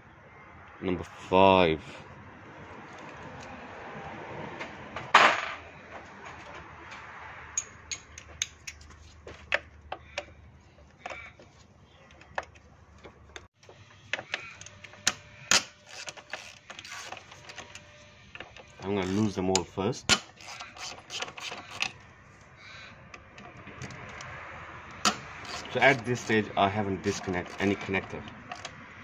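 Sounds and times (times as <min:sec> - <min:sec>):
ratchet clicks: 0:14.4 - 0:17.8, 0:18.4 - 0:22.0, 0:23.2 - 0:26.4, 0:27.0 - 0:28.8.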